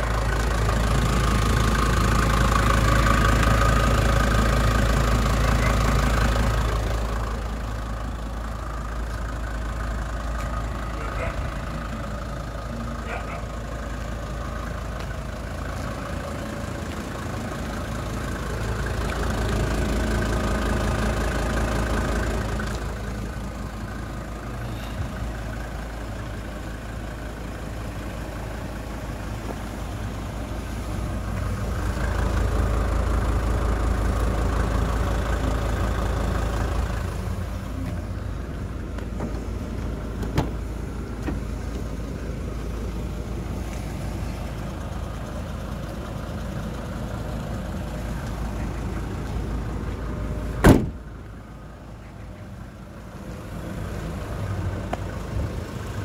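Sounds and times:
diesel engine idling: 0.0 - 56.0
car door opening click: 50.6 - 51.0.

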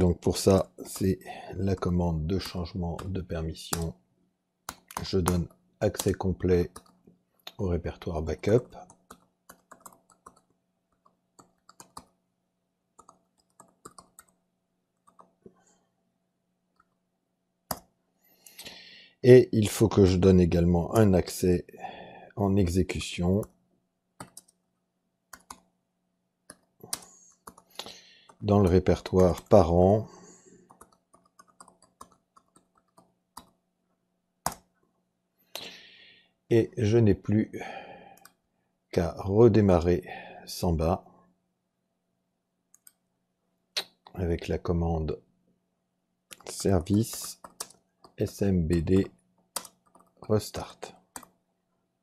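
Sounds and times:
computer keyboard keystrokes: 4.7 - 7.0, 8.8 - 12.2, 13.0 - 14.4, 15.0 - 15.4, 17.7 - 17.9, 24.2 - 24.6, 25.3 - 25.7, 30.7 - 33.6, 46.3 - 48.2, 48.9 - 50.2, 51.0 - 51.4.

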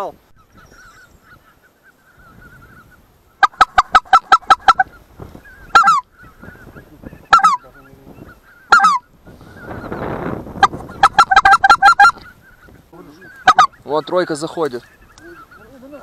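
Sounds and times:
distant geese calling: 0.0 - 16.0
goose honking: 0.7 - 16.0.

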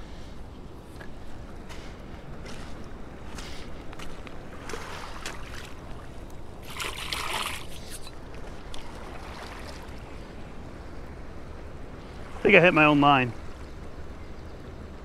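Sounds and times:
low rush of water: 1.0 - 14.2
hands splashing in water: 6.6 - 8.1.

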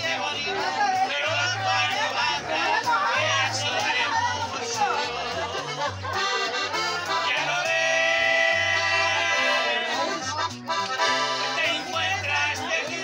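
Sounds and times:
button accordion melody: 0.0 - 13.0.

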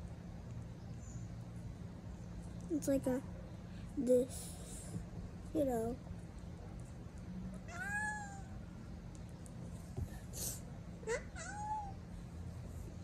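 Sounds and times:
cat meowing: 7.6 - 8.5, 11.1 - 12.0.

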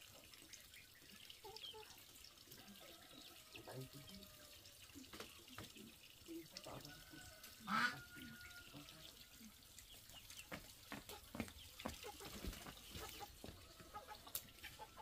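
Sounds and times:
footsteps: 10.4 - 14.4.

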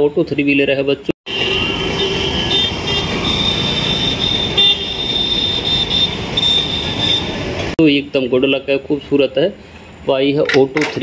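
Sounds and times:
busy street traffic: 0.0 - 11.0
high-pitched vehicle horn tooting: 1.3 - 7.5.

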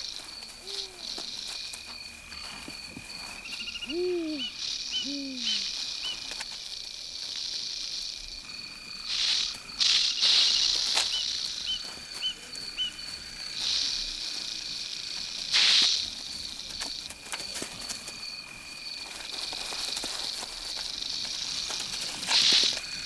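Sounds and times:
night insects trilling: 0.0 - 23.0
low hoots: 0.6 - 1.3, 3.5 - 6.3
porcupine rattling quills: 9.0 - 23.0.

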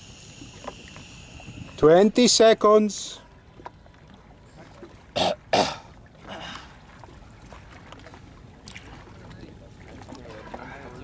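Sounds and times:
man clearing his throat: 5.2 - 6.6.

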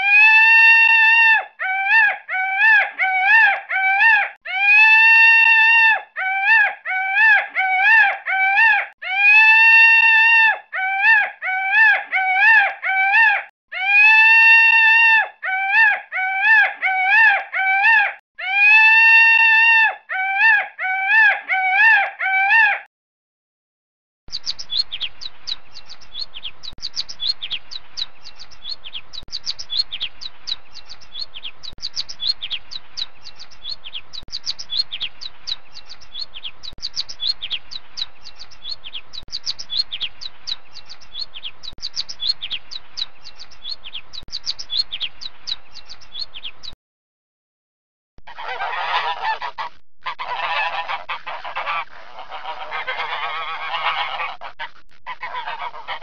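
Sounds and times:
sparrows chirping: 24.3 - 46.8
whistling bird calls: 24.3 - 46.8.

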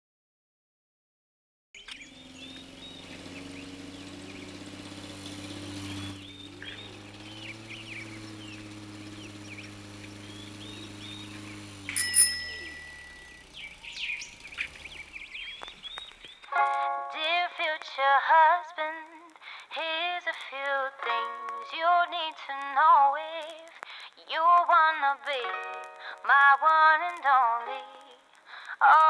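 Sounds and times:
birds chirping: 1.8 - 17.8
bright ding: 11.9 - 13.4.

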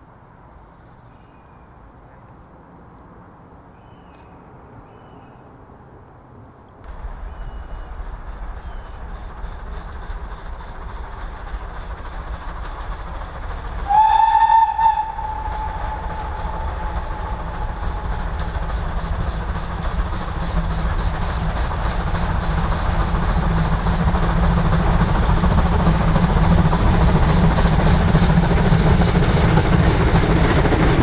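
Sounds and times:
train rumble: 0.0 - 31.0
steam engine exhaust beats: 6.9 - 31.0
steam locomotive whistle: 13.8 - 18.4.

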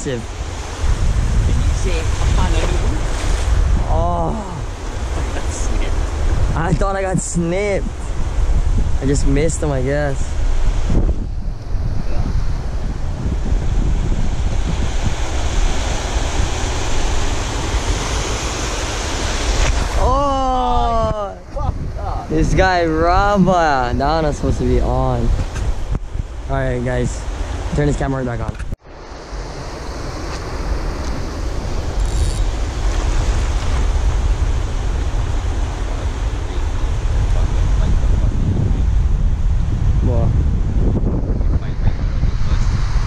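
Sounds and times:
ocean surf washing over rocks: 0.0 - 28.2, 28.8 - 40.0
wind buffeting microphone: 0.0 - 43.0.

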